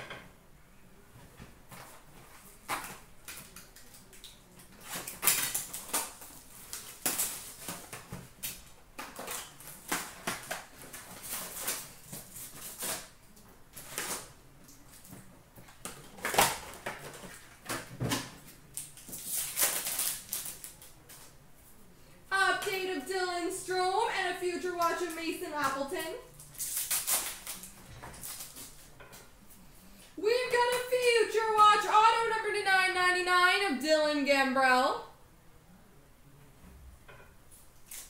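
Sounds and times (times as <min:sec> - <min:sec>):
foil packs tearing: 0:02.6 - 0:13.2, 0:13.8 - 0:14.4, 0:18.8 - 0:20.9, 0:26.4 - 0:28.8
wrapper crinkling: 0:18.7 - 0:21.3, 0:24.8 - 0:28.9.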